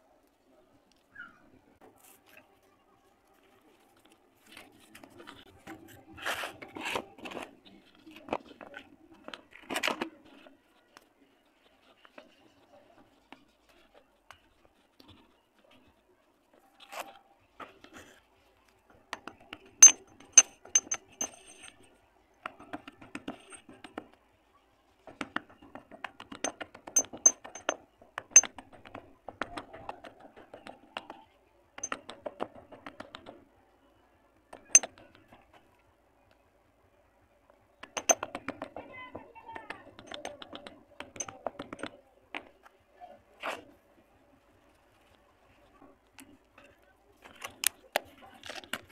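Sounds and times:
clay crunching and crackling: 0.0 - 24.2, 43.4 - 48.9
pestle clinking on stone mortar: 19.2 - 21.7, 38.0 - 38.6.

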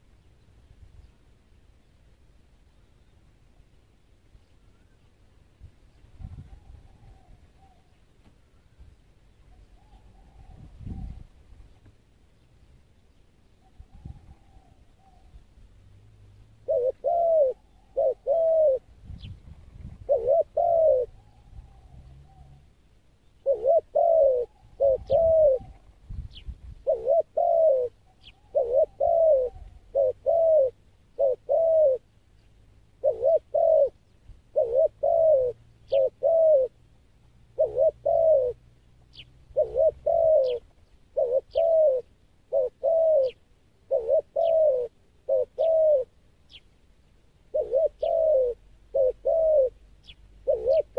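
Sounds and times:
dove cooing: 6.2 - 8.0, 9.5 - 11.4, 13.6 - 15.4, 16.6 - 22.7, 23.3 - 32.1, 33.0 - 36.8, 37.5 - 46.6, 47.4 - 50.9
small birds chirping: 16.6 - 50.9.

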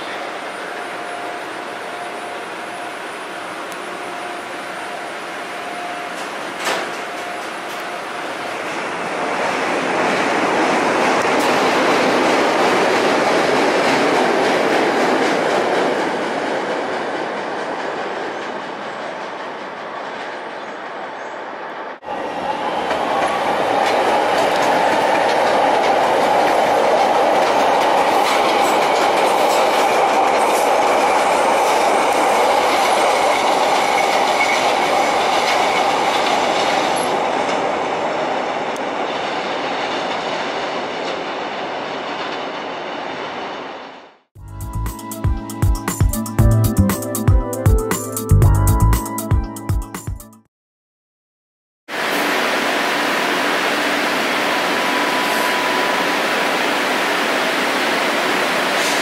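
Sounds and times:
train wheels clacking on rails: 6.1 - 21.1, 22.6 - 42.7
train grinding tone: 52.0 - 59.0.

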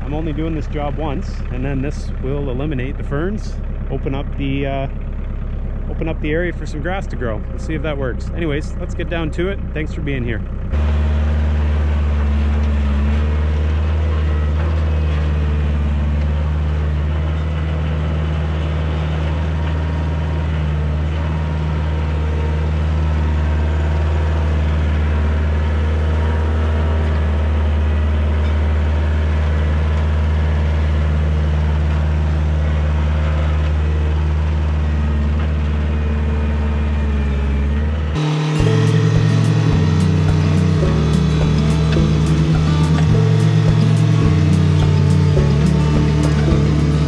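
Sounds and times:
tractor diesel engine droning: 0.0 - 47.0.

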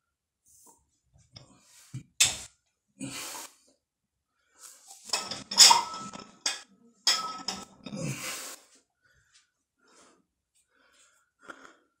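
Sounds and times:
barbell clinking and rattling: 5.1 - 7.7.

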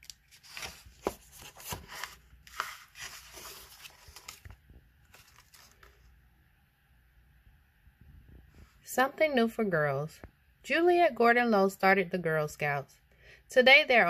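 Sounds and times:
book pages turning: 0.0 - 6.1.

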